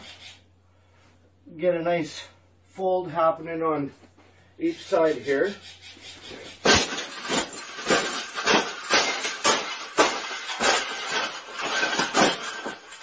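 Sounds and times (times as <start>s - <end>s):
wire cage stomped flat: 6.5s - 13.0s.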